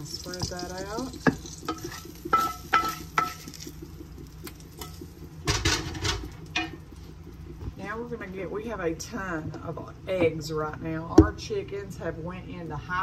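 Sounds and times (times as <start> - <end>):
spoon knocking on dish: 2.3 - 3.4.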